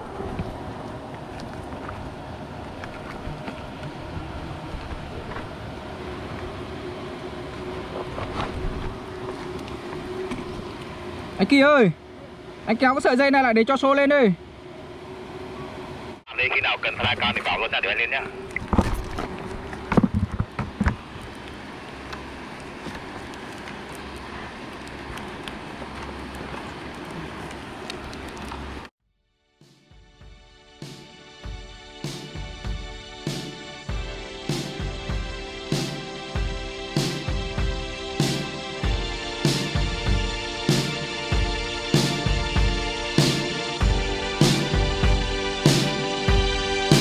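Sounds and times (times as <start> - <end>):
wind rumbling on microphone: 0.0 - 11.4.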